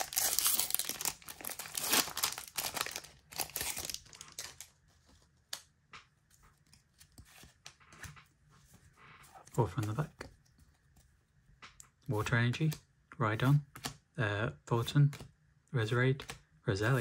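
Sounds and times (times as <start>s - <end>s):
foil wrapper tearing and crinkling: 0.0s - 4.7s
cards rustling and clicking: 0.0s - 12.0s, 13.5s - 14.0s.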